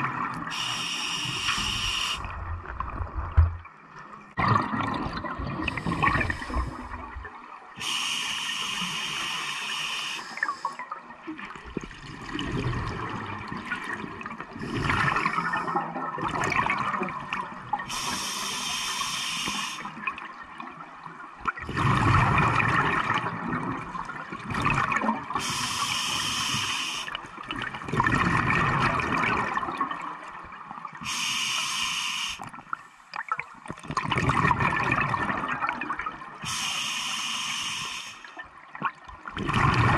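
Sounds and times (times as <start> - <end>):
air hissing from regulator: 0.5 - 2.3, 7.8 - 10.7, 17.9 - 20.0, 25.4 - 27.2, 31.0 - 32.4, 36.4 - 38.4
gurgling exhaled bubbles: 4.3 - 7.4, 11.4 - 18.0, 21.4 - 25.6, 27.4 - 30.2, 33.2 - 36.4, 38.7 - 39.9.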